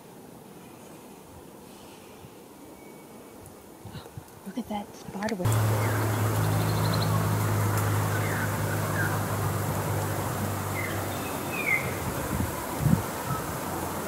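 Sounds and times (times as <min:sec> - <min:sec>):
outdoor background hiss: 0:00.0 - 0:14.0
steady low hum: 0:05.5 - 0:14.0.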